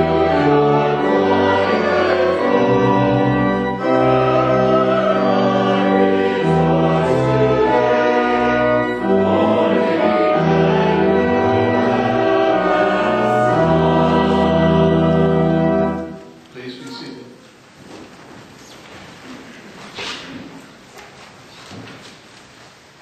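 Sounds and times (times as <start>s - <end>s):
church choir singing: 0.0s - 16.4s.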